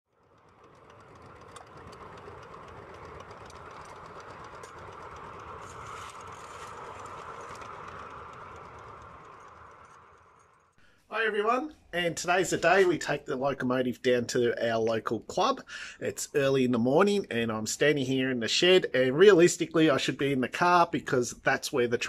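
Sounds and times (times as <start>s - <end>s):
faint irregular clicks: 0.2s - 10.8s.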